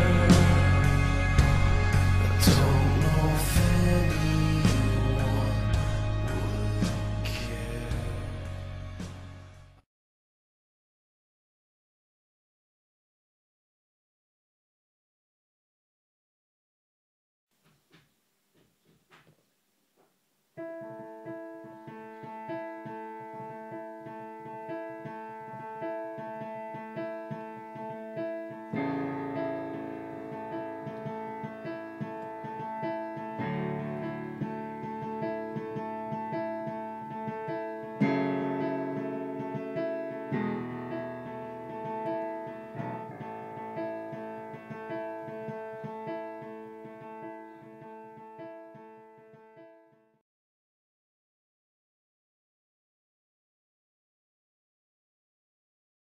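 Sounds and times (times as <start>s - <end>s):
piano music: 0.0s - 9.8s, 20.6s - 50.2s.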